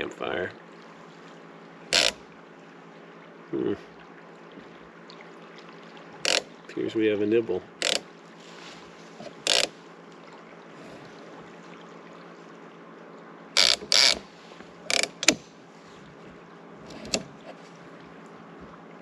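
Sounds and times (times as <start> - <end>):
fishing reel clicker ratcheting: 1.9 - 2.2, 6.2 - 6.5, 7.8 - 8.0, 9.4 - 9.7, 13.6 - 14.2, 14.9 - 15.4.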